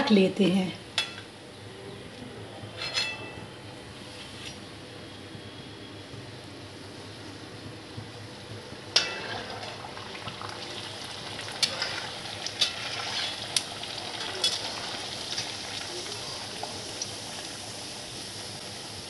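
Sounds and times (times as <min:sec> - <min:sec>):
food sizzling in hot oil: 0:08.8 - 0:19.0.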